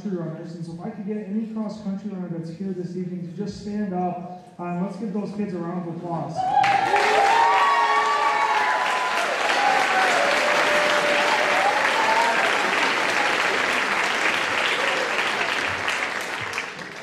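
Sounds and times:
audience applauding: 6.4s - 17.0s.

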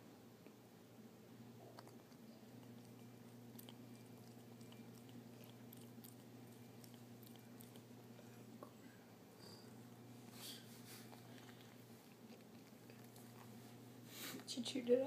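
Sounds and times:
cat chewing: 1.6s - 8.8s, 9.6s - 14.5s.

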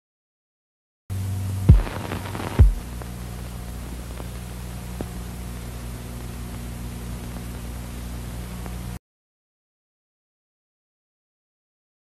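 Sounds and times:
tape hiss and electrical hum: 1.1s - 9.0s
low thump dropping in pitch: 1.7s - 2.8s.

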